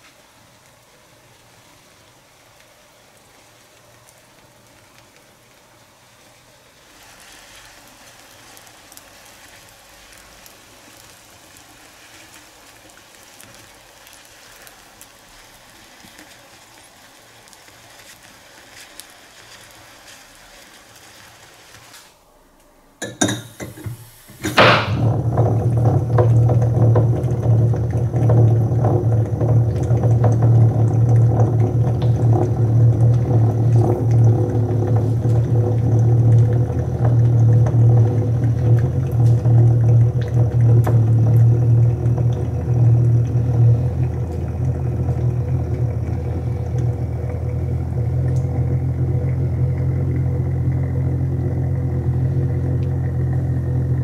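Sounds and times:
loud boiling rumble: 0:00.0 - 0:22.1, 0:23.0 - 0:54.0
faint crackling hiss: 0:00.0 - 0:54.0
low hum: 0:23.8 - 0:54.0.

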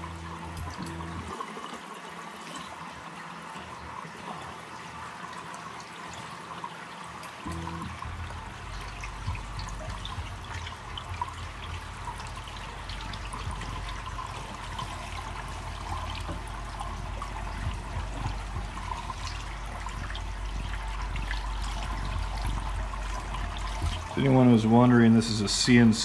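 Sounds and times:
steady low hum: 0:00.0 - 0:01.4, 0:07.4 - 0:26.0
hose water splashing on metal: 0:00.0 - 0:26.0
water trickling: 0:00.0 - 0:26.0.

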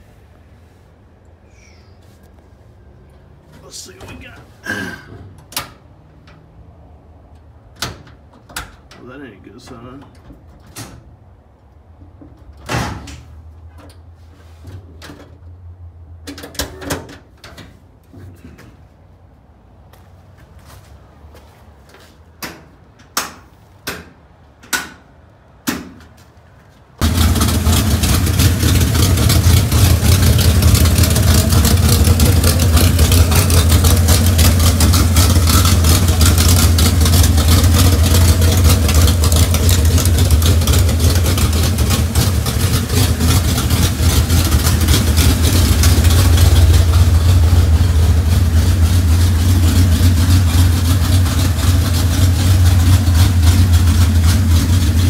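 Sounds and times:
engine idling with deep rumble: 0:27.0 - 0:55.0.

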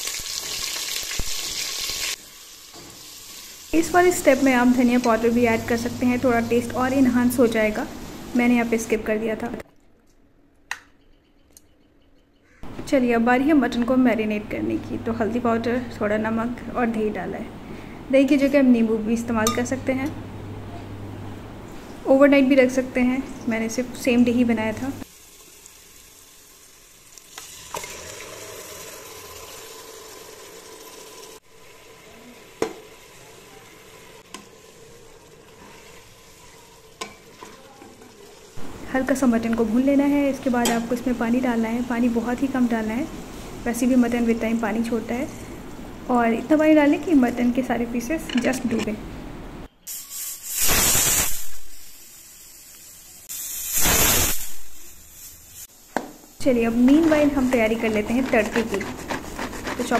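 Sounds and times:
meat and onions sizzling in oil: 0:00.0 - 0:09.0, 0:24.7 - 0:44.8, 0:49.9 - 0:59.6
faint steady hiss: 0:00.0 - 0:09.7, 0:29.4 - 0:58.8
pressure cooker valve hissing steam: 0:49.8 - 0:55.7
spatula scraping and knocking pot: 0:56.8 - 0:59.9.

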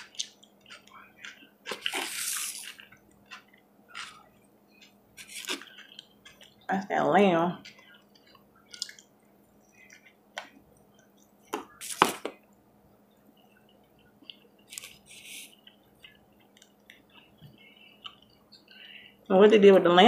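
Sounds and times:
person chewing meat: 0:00.0 - 0:06.7, 0:07.6 - 0:18.7
wet mouth clicks and smacks: 0:07.6 - 0:09.1, 0:15.6 - 0:17.3.

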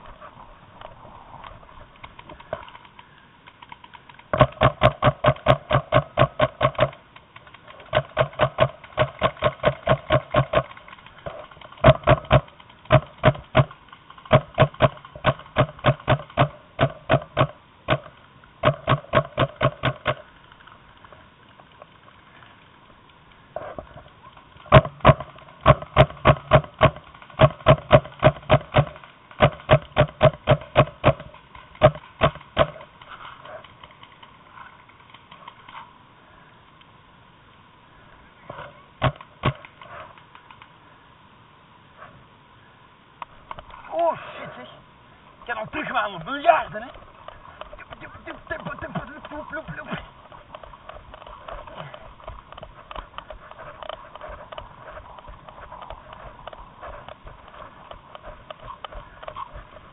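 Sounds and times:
paintball marker firing rapidly: 0:03.6 - 0:20.2, 0:24.7 - 0:34.2, 0:39.0 - 0:39.8.

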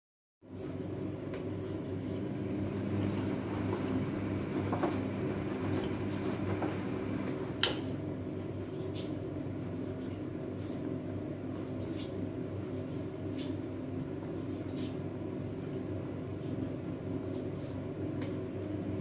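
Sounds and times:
motor hum: 0:01.8 - 0:07.8
washing machine drum turning: 0:02.3 - 0:07.8.

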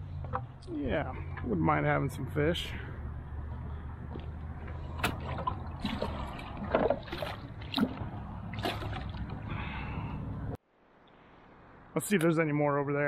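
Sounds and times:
water splashing and sloshing: 0:04.2 - 0:10.6.

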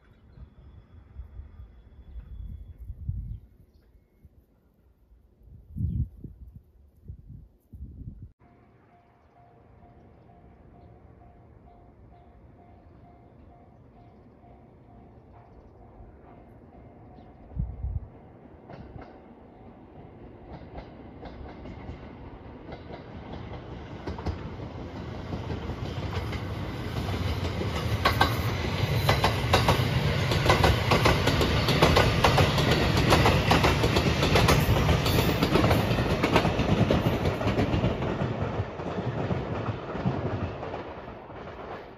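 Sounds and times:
electric train passing: 0:00.0 - 0:03.2, 0:08.4 - 0:41.9
wheels clacking over rail joints: 0:20.4 - 0:41.9.

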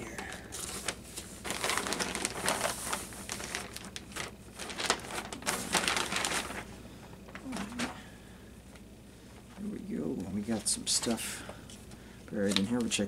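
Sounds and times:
packaging crinkling and rustling: 0:00.0 - 0:08.0, 0:12.4 - 0:13.0.

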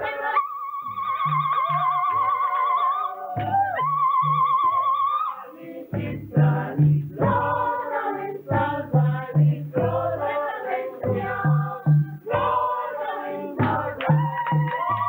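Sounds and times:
chorus of voices singing: 0:00.0 - 0:15.0
person singing with vibrato: 0:00.0 - 0:15.0
low beat: 0:06.0 - 0:12.9, 0:13.6 - 0:15.0.

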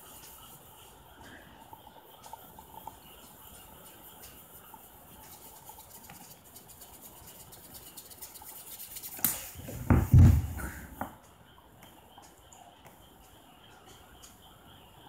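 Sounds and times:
body falling onto wooden floor: 0:09.7 - 0:10.9.

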